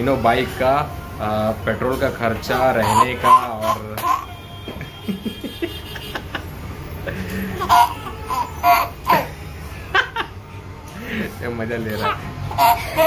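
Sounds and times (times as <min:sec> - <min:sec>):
baby laughing: 0:02.4 - 0:04.4, 0:07.1 - 0:09.4, 0:11.9 - 0:13.0.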